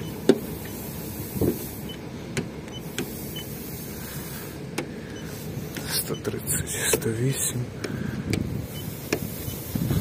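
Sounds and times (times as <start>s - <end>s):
steady background hiss: 0.1s - 7.8s.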